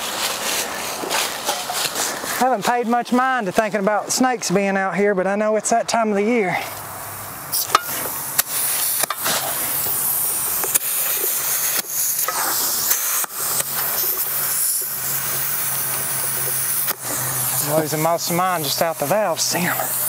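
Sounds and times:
compressed air hissing: 0.0 - 3.7, 6.5 - 20.0
air chuck clicks: 7.6 - 17.7.

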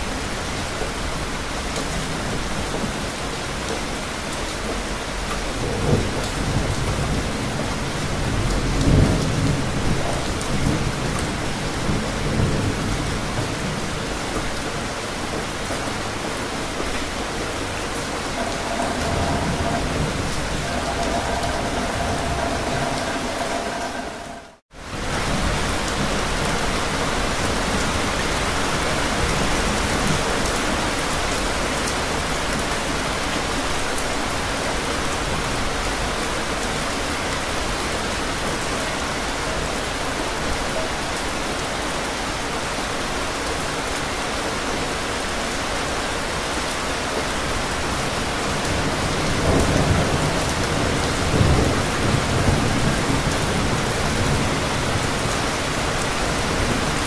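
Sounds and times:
steady rain falling: 0.0 - 57.0
low thunder rumble: 18.3 - 24.6.

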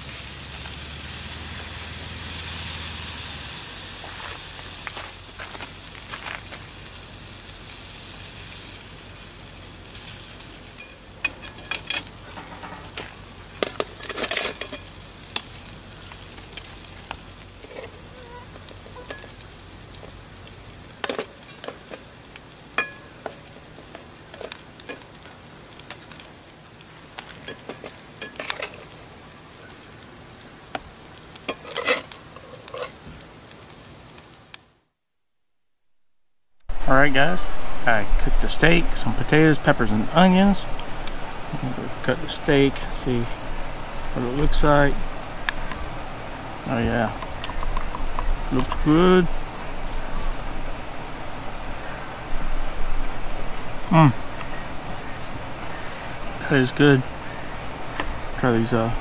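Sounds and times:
food sizzling in a frying pan: 0.0 - 34.8, 36.7 - 59.0
high insect drone: 0.0 - 34.8, 36.6 - 59.0
metal spatula scraping a pan: 10.8 - 13.0, 13.7 - 14.9, 31.5 - 33.0.

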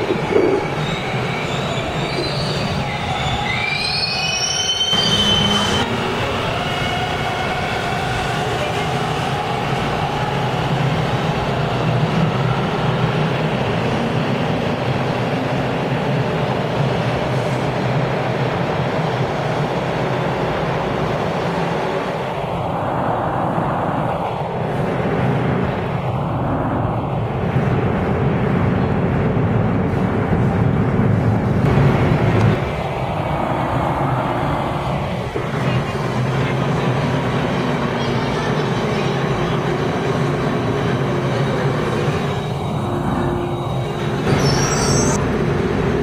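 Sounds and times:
subway train rumbling: 0.0 - 46.0
train wheels squealing: 0.6 - 7.0, 42.0 - 45.2.

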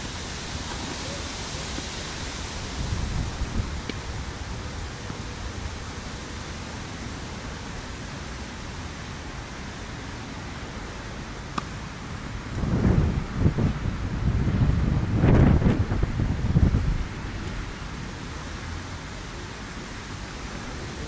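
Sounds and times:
wind noise on microphone: 0.0 - 5.0, 12.2 - 18.3
tennis racket striking ball: 11.5 - 11.7.

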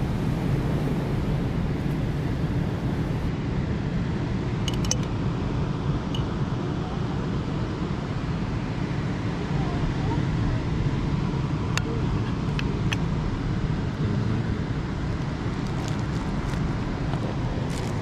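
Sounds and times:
wind on microphone: 0.0 - 3.3, 9.2 - 18.0
surf rumble: 0.0 - 18.0.

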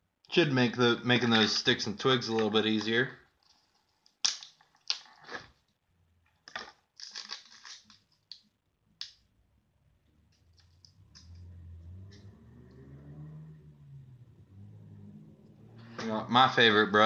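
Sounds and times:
packaging rustling and crinkling: 6.5 - 8.4.

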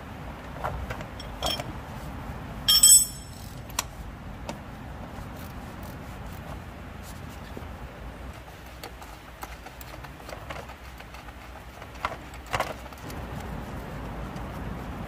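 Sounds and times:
low steady hum: 1.0 - 8.4.

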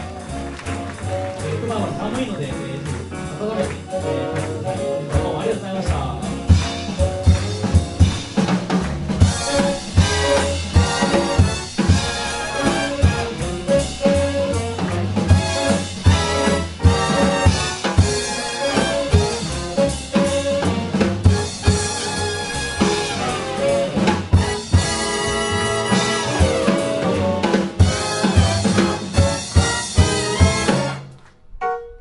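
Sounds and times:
snare and bass drum accents: 0.0 - 31.2
swing big band playing: 0.0 - 32.0.

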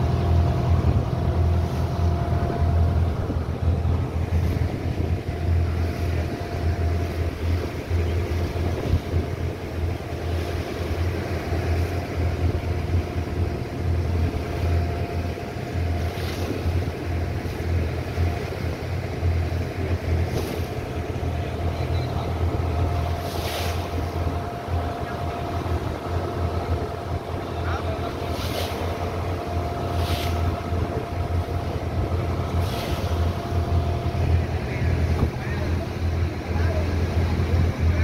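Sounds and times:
wind buffeting microphone: 0.0 - 10.2
motorboat engine drone: 0.0 - 38.0.

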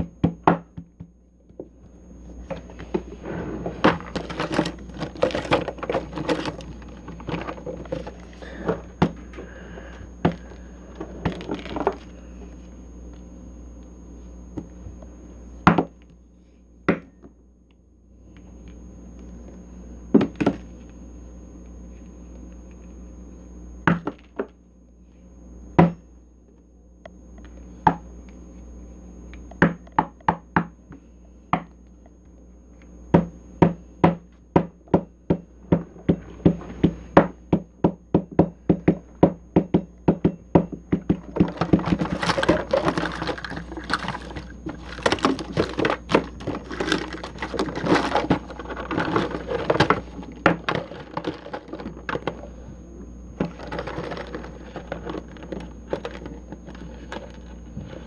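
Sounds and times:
wooden mallet pounding dough: 0.0 - 1.1, 33.1 - 44.0.

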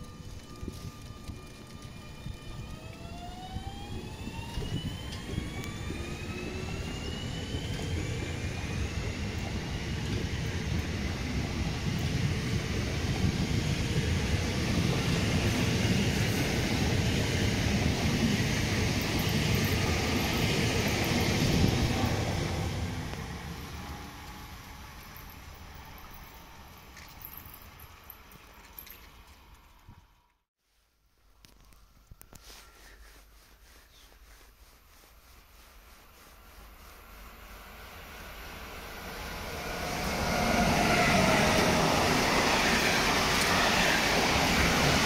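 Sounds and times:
electric train motors whining: 0.0 - 27.0
wheels rumbling on rails: 0.0 - 30.4, 35.5 - 45.0.

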